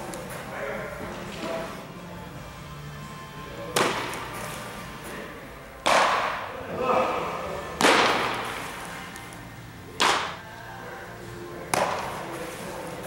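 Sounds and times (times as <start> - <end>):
baseballs smacking into mitt: 3.7 - 4.5, 5.8 - 6.5, 7.7 - 10.4, 11.7 - 12.3.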